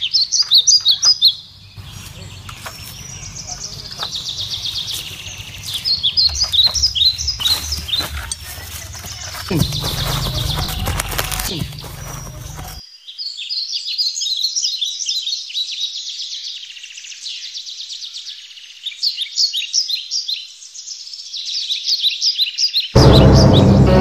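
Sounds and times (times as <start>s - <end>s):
birds chirping chorus: 0.0s - 12.9s
deep background sound: 1.6s - 12.8s, 23.0s - 24.0s.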